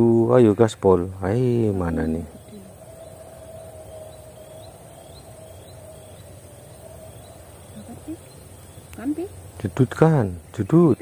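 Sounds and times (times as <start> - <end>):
faint steady hum: 0.0 - 11.0
high rising animal chirps: 1.7 - 9.6.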